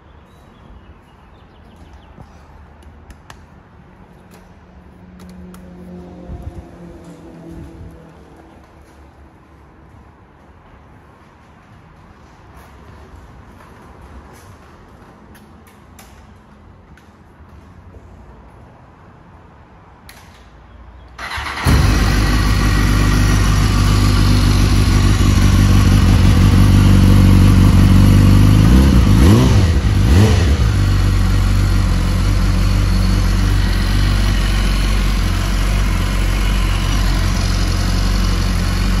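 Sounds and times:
motorcycle engine idling: 21.2s - 39.0s.

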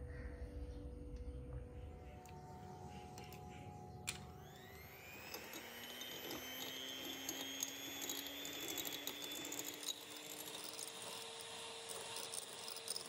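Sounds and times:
milk frother whirring: 2.3s - 13.0s.

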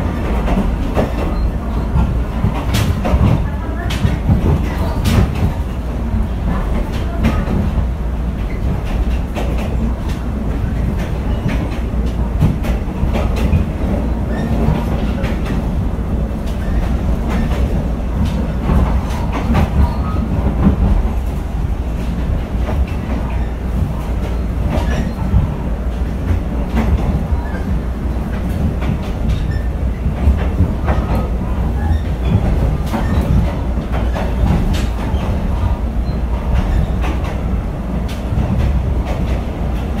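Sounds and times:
train wheels rumbling: 0.0s - 40.0s.

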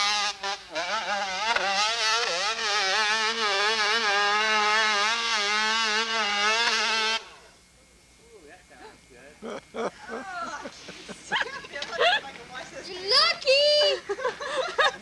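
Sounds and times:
dirt bike engine revving: 0.0s - 7.4s.

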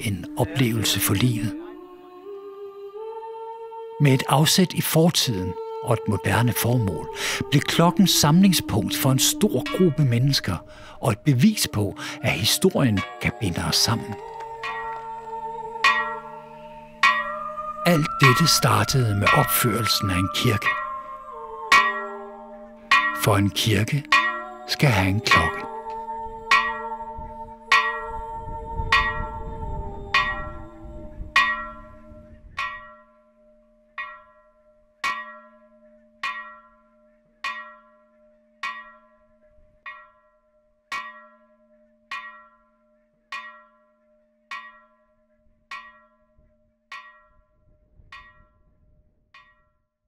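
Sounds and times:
church bell tolling: 6.6s - 43.9s.

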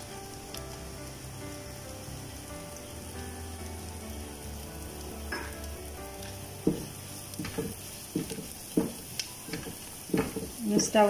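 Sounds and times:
light sizzle: 0.0s - 11.0s
spatula knocking against pan: 6.6s - 11.0s.

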